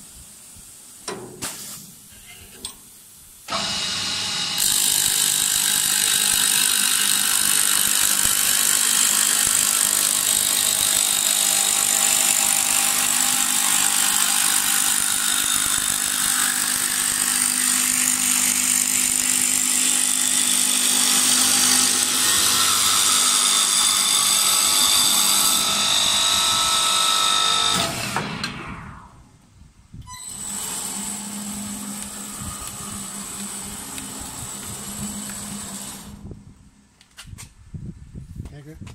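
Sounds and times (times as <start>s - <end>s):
hiss of wood being cut: 1.4s - 2.1s
wood lathe machine whine: 3.5s - 27.9s, 30.2s - 36.2s.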